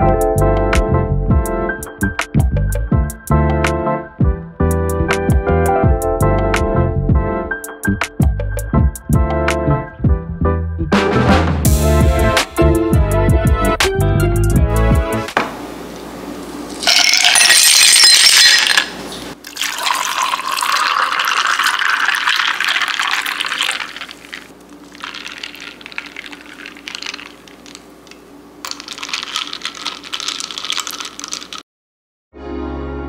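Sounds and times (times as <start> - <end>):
kitchen tap running: 19.3 - 27.8.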